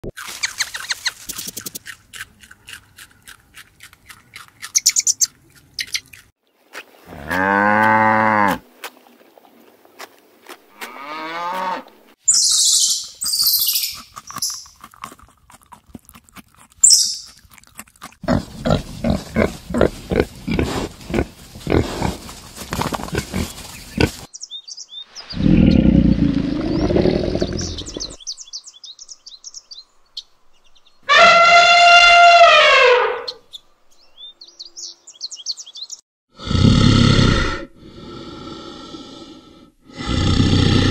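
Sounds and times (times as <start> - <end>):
even pulsing call: 31.0 - 33.4
high animal calls: 31.1 - 33.4.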